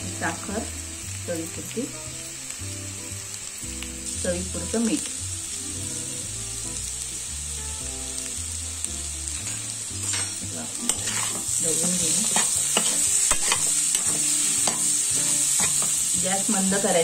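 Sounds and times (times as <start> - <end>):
potatoes sizzling in oil: 0.0 - 17.0
spatula scraping pan: 10.0 - 16.1.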